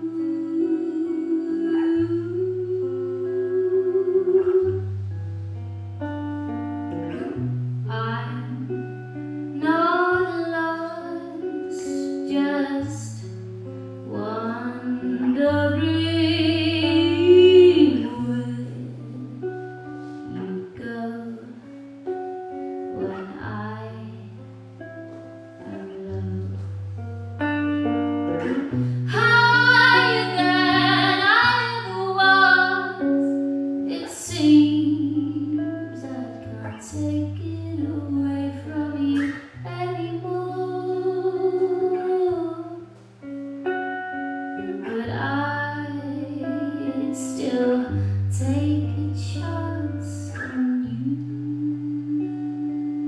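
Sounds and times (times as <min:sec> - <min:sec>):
woman singing with vibrato: 0:00.0 - 0:04.9, 0:09.6 - 0:13.4, 0:14.0 - 0:21.7, 0:22.9 - 0:24.4, 0:25.6 - 0:26.7, 0:28.3 - 0:43.0, 0:44.5 - 0:53.0
acoustic guitar: 0:00.0 - 0:53.0.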